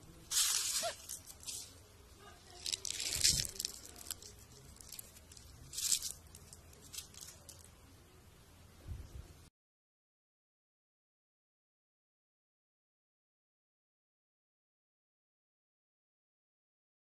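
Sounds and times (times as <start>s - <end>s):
dry leaves crunching in a hand: 0.2s - 1.8s, 2.4s - 7.7s.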